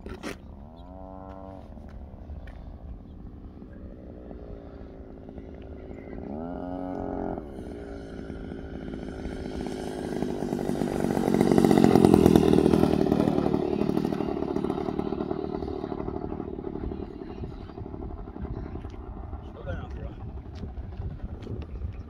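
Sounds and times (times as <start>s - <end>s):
model plane engine and propeller: 0.0s - 22.0s.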